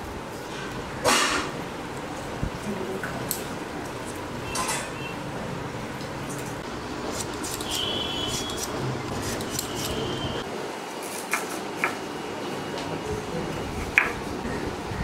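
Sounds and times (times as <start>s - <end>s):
utensils clinking and scraping: 3.3s - 5.1s, 6.3s - 10.4s.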